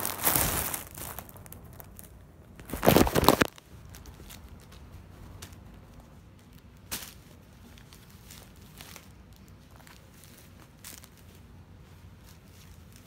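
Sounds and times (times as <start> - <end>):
plastic crinkles: 0.0 - 13.0
rustling of clothes and packaging: 0.0 - 13.0.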